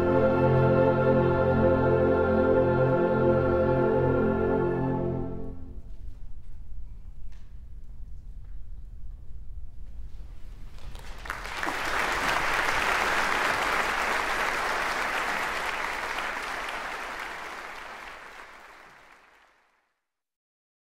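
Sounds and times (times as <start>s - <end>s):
audience applauding: 10.8s - 19.8s.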